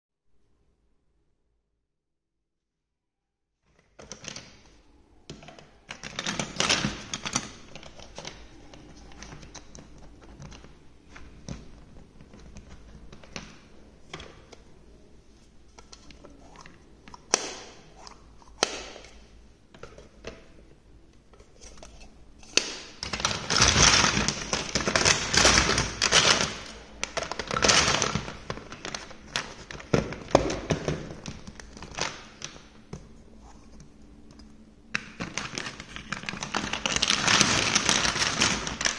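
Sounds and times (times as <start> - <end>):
plastic toy blocks clattering: 5.3 - 14.5, 22.5 - 32.6, 35.0 - 38.9.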